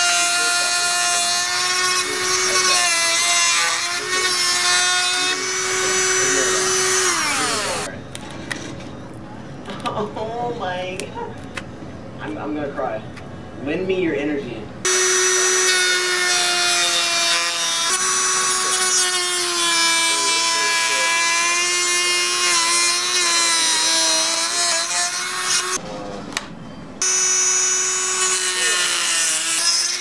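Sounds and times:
rotary tool cutting plastic: 0.0s - 7.9s, 14.9s - 25.8s, 27.0s - 30.0s.

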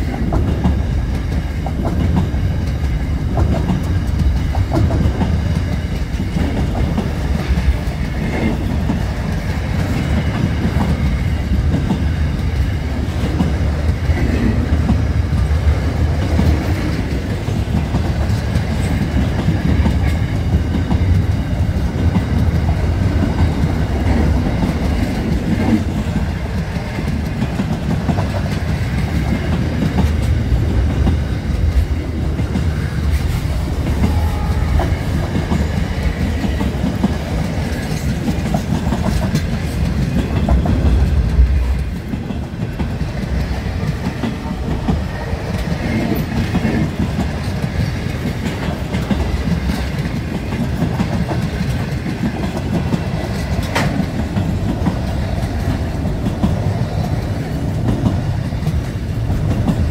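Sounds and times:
freight train wagons rumbling: 0.0s - 59.9s
wheels clicking over rail joints: 0.0s - 59.9s.

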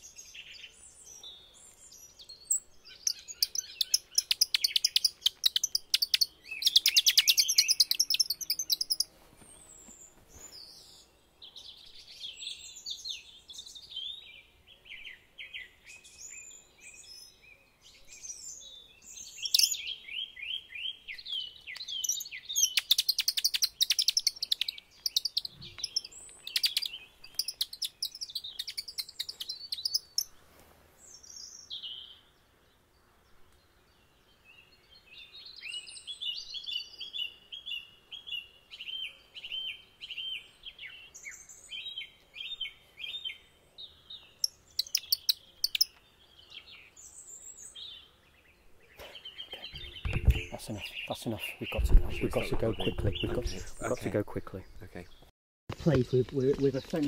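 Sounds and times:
high rapid bird-like chirping: 2.5s - 9.1s, 19.4s - 19.9s, 21.7s - 30.3s, 44.4s - 46.0s, 49.0s - 55.3s.

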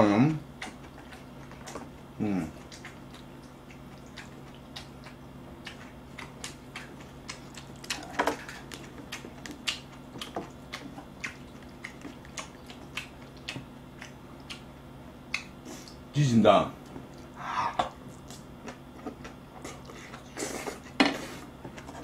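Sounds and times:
mouth and chewing noises: 0.5s - 16.0s, 16.8s - 21.0s.

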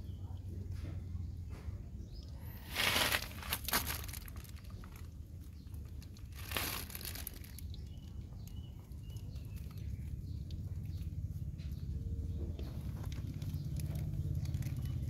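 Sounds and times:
steady low rumble: 0.0s - 15.0s
puppies scuffling on dry leaves: 2.6s - 5.0s.

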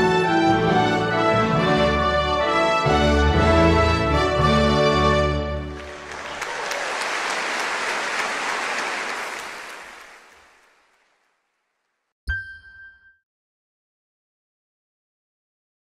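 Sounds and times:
audience applause: 5.4s - 11.5s.

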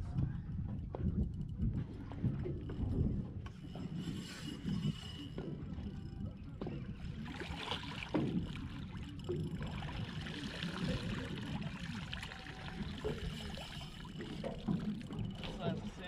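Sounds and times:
water lapping against boat hull: 0.0s - 16.0s
wind rumble on microphone: 0.0s - 16.0s
small splashes: 7.2s - 16.0s.

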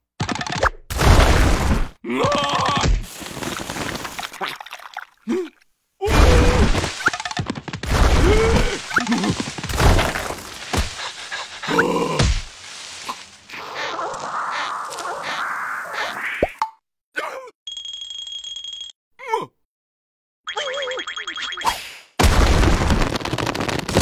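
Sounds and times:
cartoon character cries and groans: 19.2s - 19.6s.

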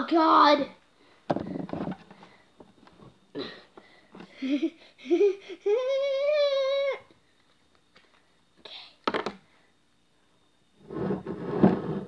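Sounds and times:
boy's strained sounds: 4.4s - 7.1s.

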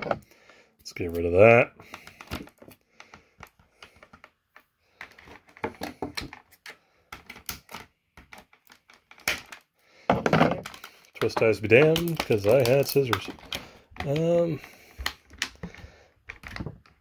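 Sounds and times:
plastic packaging crinkling: 10.6s - 16.8s.

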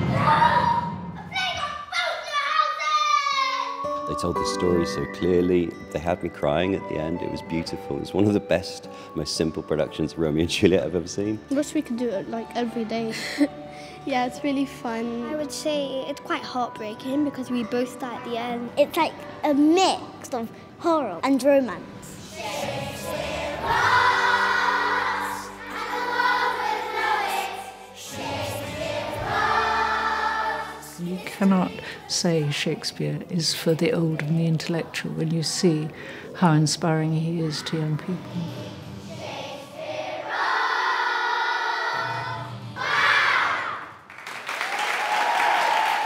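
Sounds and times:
children's choir singing: 0.0s - 1.2s, 22.0s - 32.8s, 37.5s - 43.9s
audience applause: 44.0s - 46.0s.

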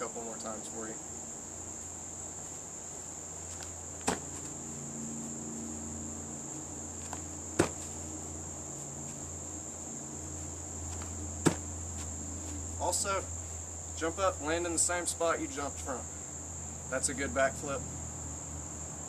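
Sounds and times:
crickets trilling: 0.0s - 19.0s
feet landing on grass: 3.4s - 4.7s, 7.0s - 9.3s, 10.8s - 12.8s.

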